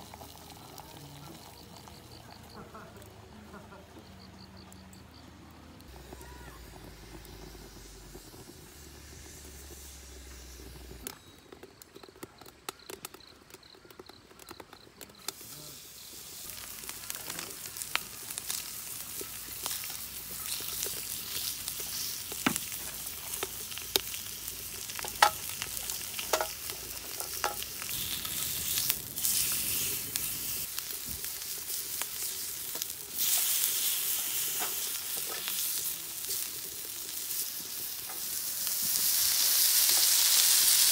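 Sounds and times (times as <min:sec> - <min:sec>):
meat sizzling in a frying pan: 0:00.0 - 0:02.6, 0:15.3 - 0:40.9.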